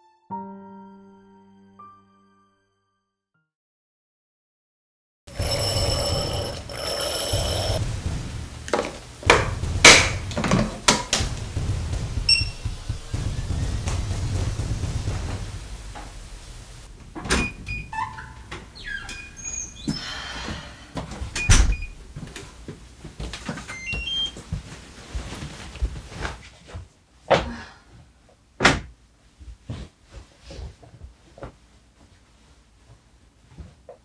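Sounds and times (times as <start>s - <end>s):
thumps: 5.3s - 18.8s
light footsteps: 7.4s - 17.2s
door opening: 17.0s - 20.2s, 21.1s - 22.0s
electronic lock beeps: 17.4s - 19.9s
clothing rustle: 22.9s - 27.0s.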